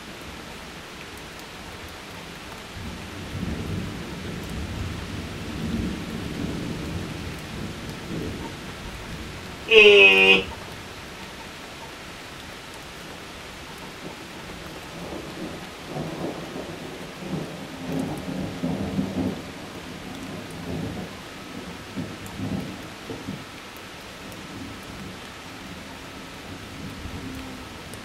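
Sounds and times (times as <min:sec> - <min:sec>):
steady rain: 0:00.0 - 0:28.0
rolling thunder: 0:03.2 - 0:09.4, 0:15.0 - 0:23.4.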